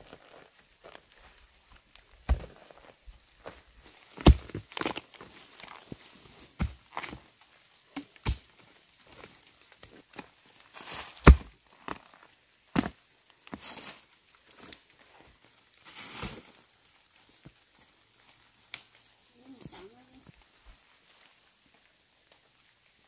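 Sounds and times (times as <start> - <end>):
rustling: 9.0 - 22.5.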